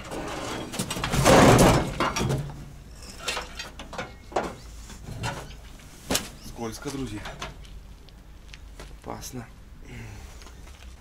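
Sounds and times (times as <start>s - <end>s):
scraping and clattering in metal cab: 0.0s - 6.4s.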